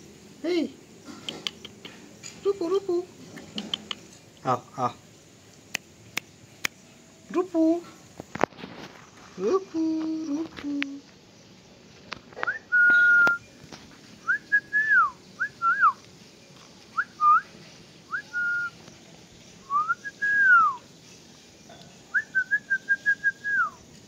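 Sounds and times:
whistling: 12.4 - 13.5, 14.2 - 16.0, 17.0 - 17.5, 18.1 - 18.8, 19.6 - 20.8, 22.1 - 23.8.

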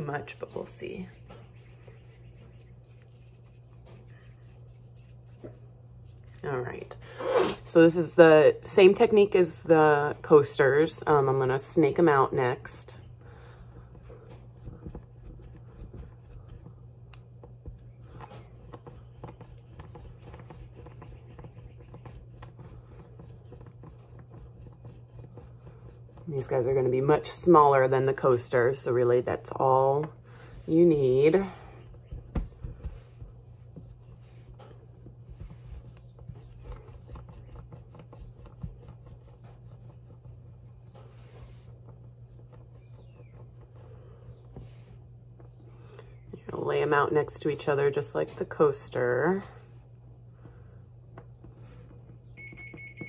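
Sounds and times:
soft brushing: 0.0 - 6.6, 32.9 - 45.1
clay rubbing under a palm: 0.0 - 8.1, 11.1 - 46.4, 48.8 - 52.5
steady low hum: 0.0 - 53.0.

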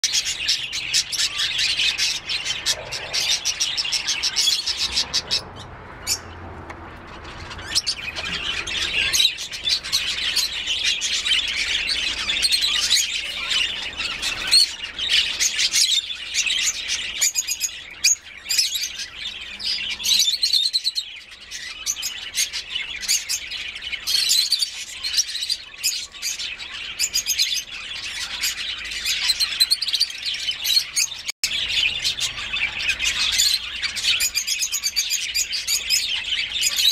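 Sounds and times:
lovebirds chirping: 0.0 - 36.9.

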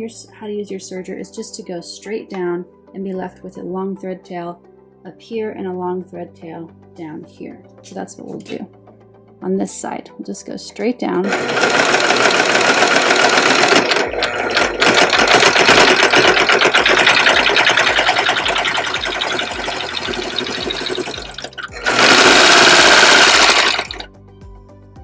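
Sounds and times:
overlock sewing machine stitching: 11.2 - 24.1.

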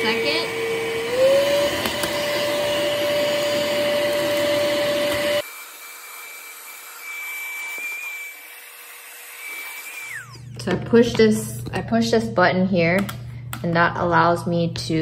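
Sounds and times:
handheld vacuum running: 0.0 - 11.4.

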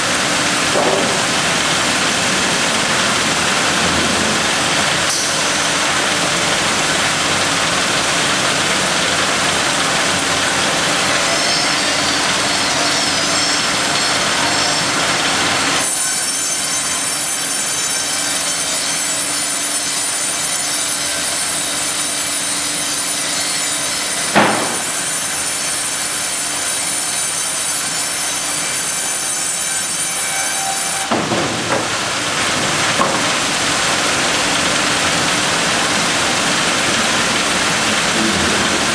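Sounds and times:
bandsaw sawing log: 0.0 - 6.5, 10.1 - 37.0
sharp knocks: 24.3 - 25.0, 31.1 - 32.0, 32.6 - 33.4.

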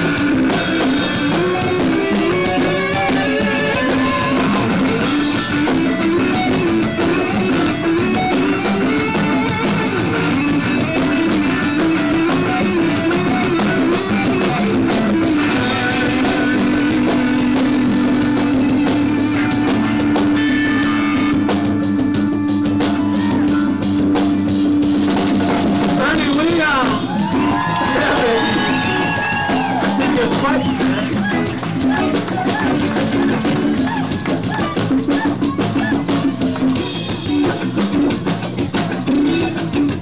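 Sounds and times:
lead guitar bending notes: 0.0 - 40.0
rock band jamming: 0.0 - 40.0.

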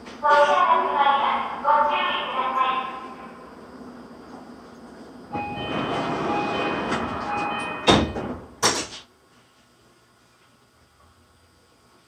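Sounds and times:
station noise: 0.0 - 8.6
train doors thumping shut: 5.3 - 9.0
two-note door chime: 5.4 - 8.4.

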